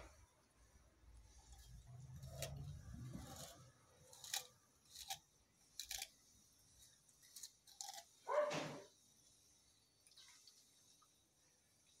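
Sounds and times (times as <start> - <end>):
dog crunching sugarcane: 1.4 - 8.9.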